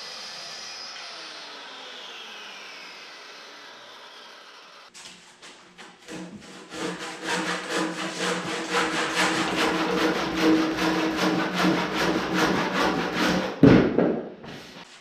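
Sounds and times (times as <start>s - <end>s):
hand saw cutting wood: 5.8s - 13.7s.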